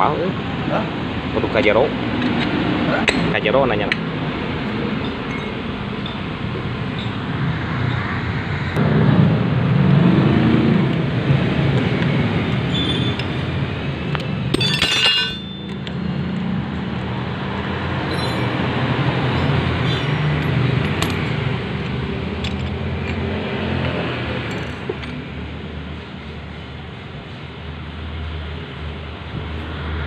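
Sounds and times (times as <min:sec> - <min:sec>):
metal tools clinking: 0:05.0 - 0:06.3, 0:14.5 - 0:15.9, 0:18.1 - 0:18.6
metallic clatter: 0:14.5 - 0:15.8.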